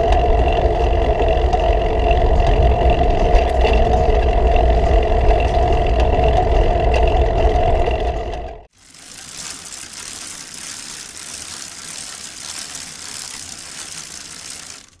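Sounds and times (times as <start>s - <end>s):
fine hissing rattle: 8.7s - 15.0s.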